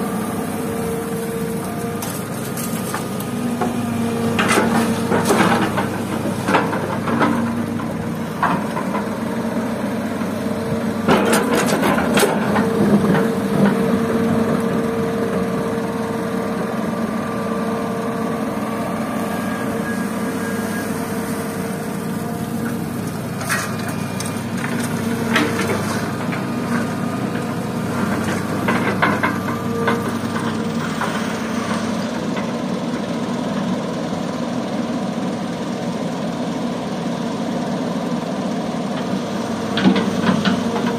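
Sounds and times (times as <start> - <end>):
excavator diesel engine whining: 0.0 - 40.9
bucket scraping earth and stones: 2.0 - 3.4.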